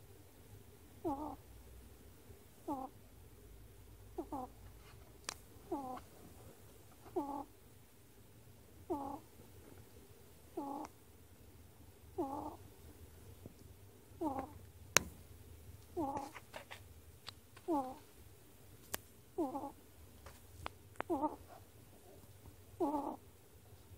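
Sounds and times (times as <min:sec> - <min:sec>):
ferret snoring: 0:01.0 - 0:01.4, 0:02.6 - 0:03.0, 0:04.2 - 0:04.6, 0:05.7 - 0:06.0, 0:07.1 - 0:07.5, 0:08.9 - 0:09.3, 0:10.6 - 0:10.9, 0:12.1 - 0:12.6, 0:14.2 - 0:14.6, 0:16.0 - 0:16.4, 0:17.7 - 0:18.0, 0:19.4 - 0:19.8, 0:21.1 - 0:21.4, 0:22.8 - 0:23.2.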